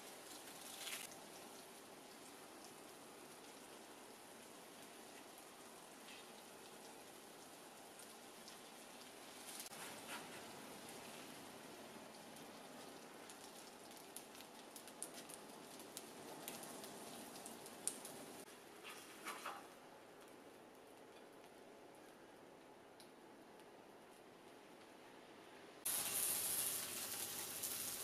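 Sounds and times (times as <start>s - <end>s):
egg sizzling in oil: 25.9s - 28.0s.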